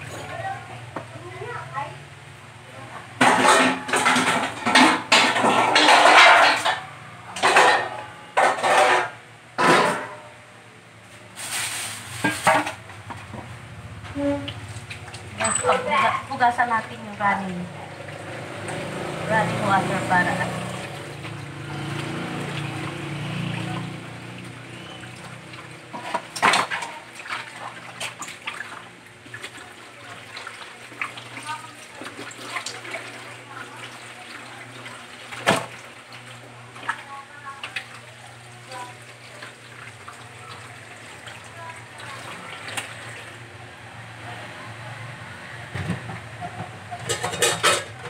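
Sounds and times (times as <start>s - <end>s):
water running in a sink: 2.8s - 9.2s, 11.4s - 48.0s
metal utensils scraping and clattering: 3.2s - 10.2s, 11.4s - 12.8s, 15.4s - 16.3s, 46.8s - 48.0s
hands rubbing and rinsing fish: 11.2s - 12.8s, 14.2s - 43.4s.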